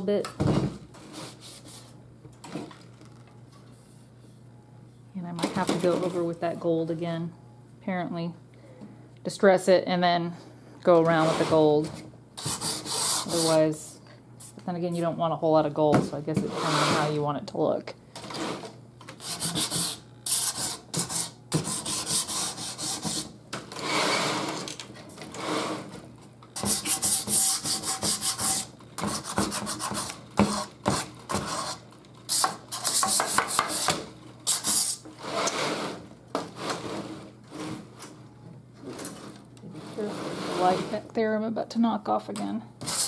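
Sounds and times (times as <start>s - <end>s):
sanding block rubbing on wood: 19.2s - 23.3s, 26.6s - 30.7s.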